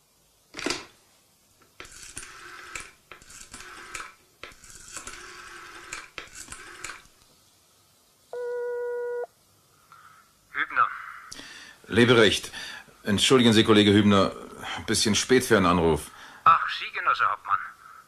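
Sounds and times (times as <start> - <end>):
rotary phone dial whirring: 1.7 - 7.1
telephone ringing tone: 8.3 - 9.3.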